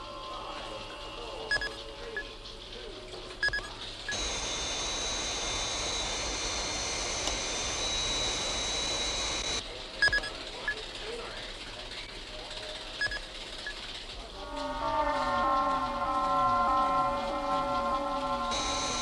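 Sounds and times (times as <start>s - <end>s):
electronic bleeps: 1.5s - 2.3s, 3.4s - 10.3s
spacecraft jet hiss with whine: 4.1s - 9.6s, 15.2s - 19.0s.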